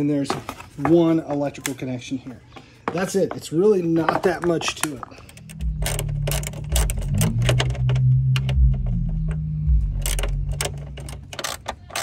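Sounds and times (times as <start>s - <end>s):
loud low hum: 5.2s - 11.7s.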